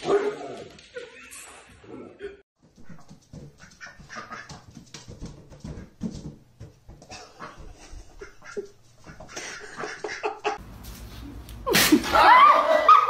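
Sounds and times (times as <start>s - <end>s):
duck feet pattering on wood floor: 2.6s - 10.3s
ducks calling softly: 2.8s - 4.7s.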